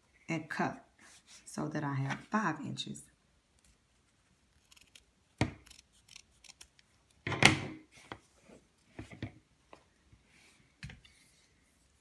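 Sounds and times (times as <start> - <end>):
scissors cutting elastic band: 4.6 - 7.2.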